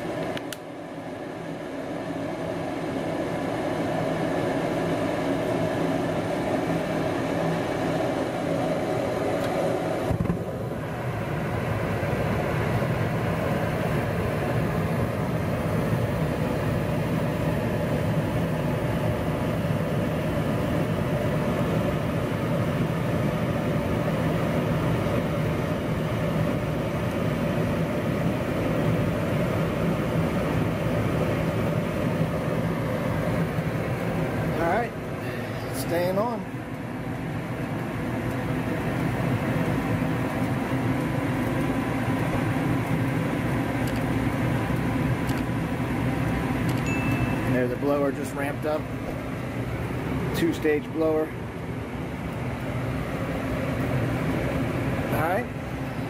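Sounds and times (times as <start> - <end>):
draft inducer motor hum: 0.0 - 56.0
gas furnace burners roaring: 0.0 - 56.0.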